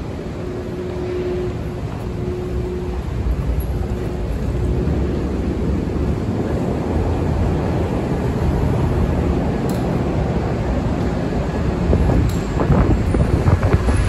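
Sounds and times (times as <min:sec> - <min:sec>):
faint hum tone: 0:00.0 - 0:08.5
subway station rumble: 0:00.0 - 0:14.0.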